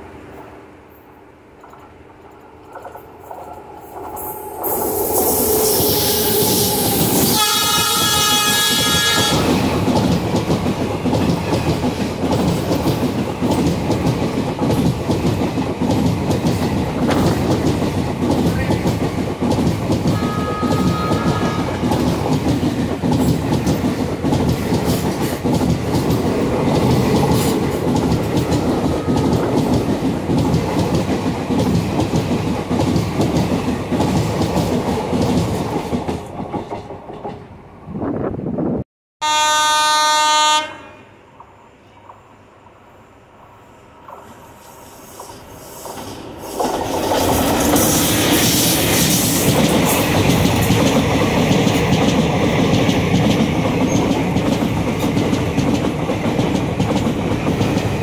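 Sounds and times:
train coaches rumbling past: 0.0 - 58.0
train horn: 5.2 - 9.7, 20.2 - 21.9, 28.8 - 29.4, 39.2 - 41.2.

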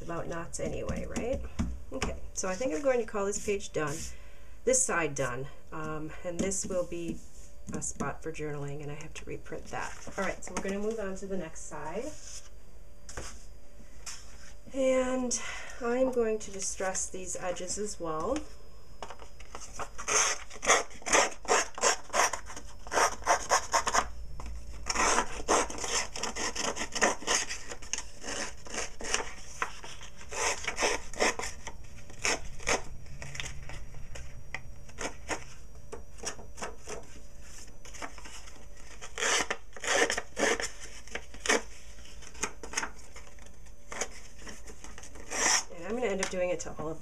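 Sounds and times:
tool scraping paper edges: 19.5 - 24.1, 24.8 - 32.8, 36.2 - 42.9, 43.9 - 45.7.

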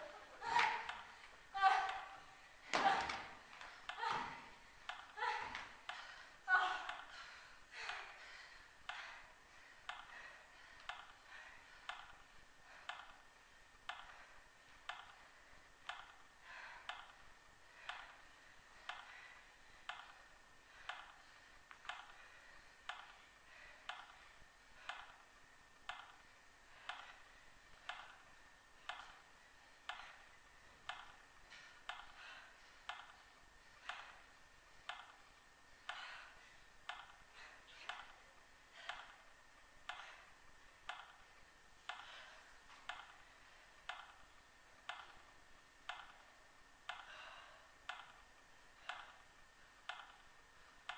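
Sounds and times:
faint steady hum: 0.0 - 50.9
faint clock-like ticking: 4.6 - 50.9.

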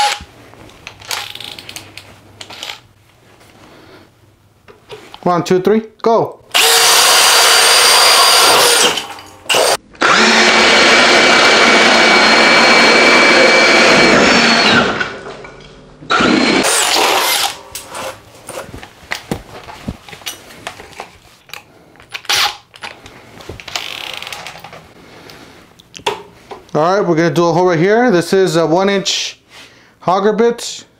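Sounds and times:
drill motor whine: 0.0 - 0.2, 6.5 - 15.1, 16.1 - 17.6.

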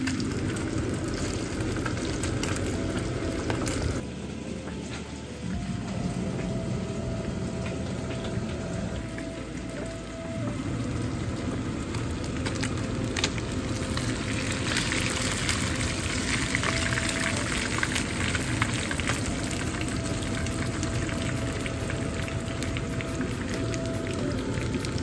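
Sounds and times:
fish frying in hot oil: 0.0 - 25.0
crackles and pops of oil: 11.9 - 17.4.

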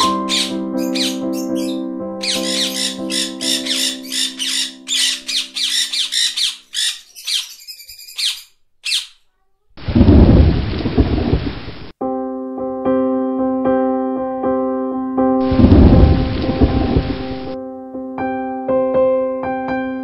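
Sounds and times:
repeated piano-like notes: 0.0 - 5.6, 12.0 - 20.0
sustained music tones: 0.0 - 6.0, 15.4 - 17.6
rapid bird calls: 0.0 - 9.3
thunder and rain: 9.8 - 11.9, 15.4 - 17.6.

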